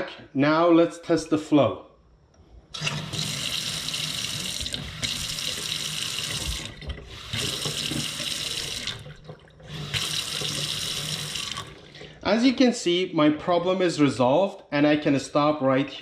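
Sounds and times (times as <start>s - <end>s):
faucet running into steel sink: 2.8s - 12.2s.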